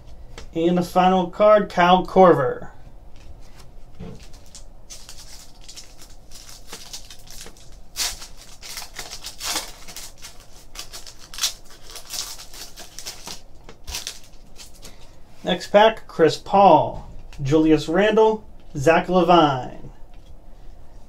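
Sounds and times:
foil wrapper crinkling and tearing: 4.2s - 15.1s.

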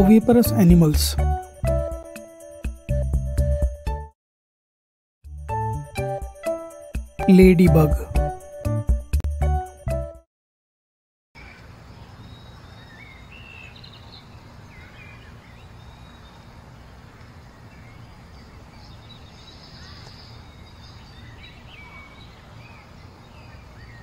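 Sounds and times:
bird chirps: 11.4s - 16.5s, 17.7s - 24.0s.

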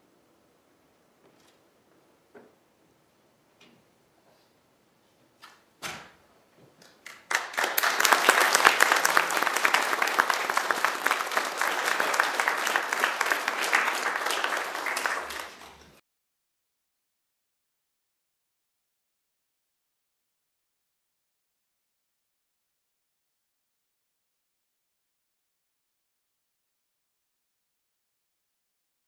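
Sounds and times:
people applauding: 7.0s - 16.0s.

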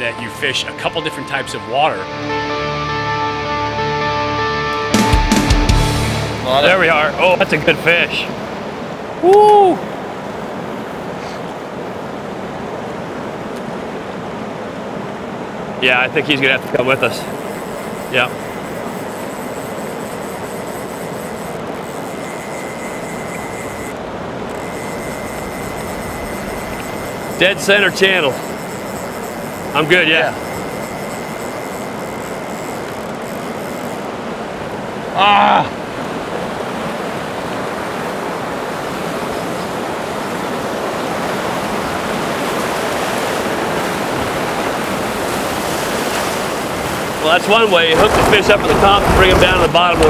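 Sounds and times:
whitewater rapids rushing: 6.0s - 50.0s.

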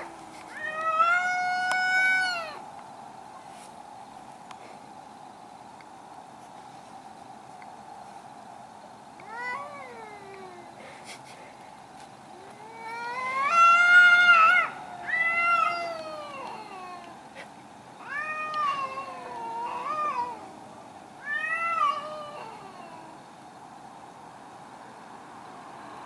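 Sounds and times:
cats yowling: 0.0s - 2.6s, 9.2s - 10.7s, 12.3s - 17.3s, 18.0s - 20.6s, 21.2s - 23.2s.

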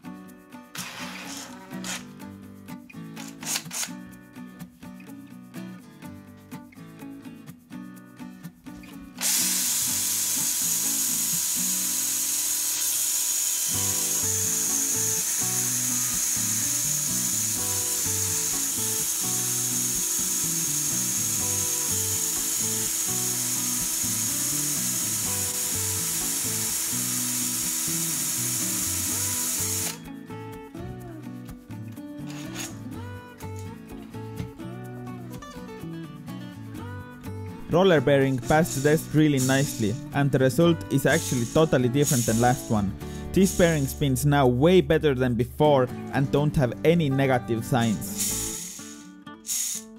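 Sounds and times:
background music: 0.0s - 49.9s
cordless drill running: 0.8s - 2.0s, 3.3s - 3.9s, 9.2s - 30.0s, 41.2s - 42.7s, 48.1s - 49.9s.

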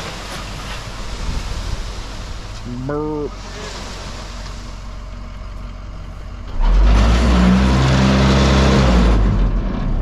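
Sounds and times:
excavator diesel engine revving: 3.3s - 10.0s.

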